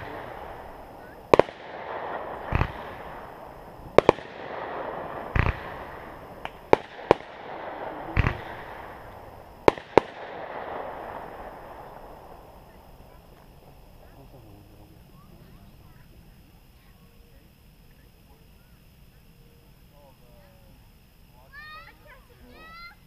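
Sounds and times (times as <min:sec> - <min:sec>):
firework booms: 0:00.0 - 0:16.2
sharp firework cracks: 0:00.0 - 0:17.0
firework crackling: 0:00.0 - 0:23.0.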